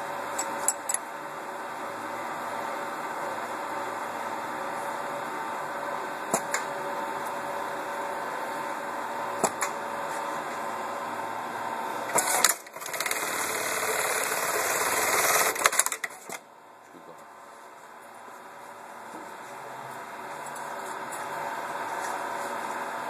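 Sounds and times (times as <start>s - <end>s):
machine humming: 0.0s - 23.0s
fast dense machine stitching: 12.1s - 16.2s
machine clicks: 12.1s - 16.4s.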